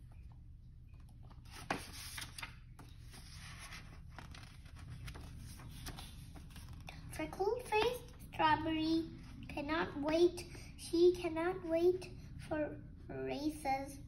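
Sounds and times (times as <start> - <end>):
book pages rustling: 1.0 - 7.1.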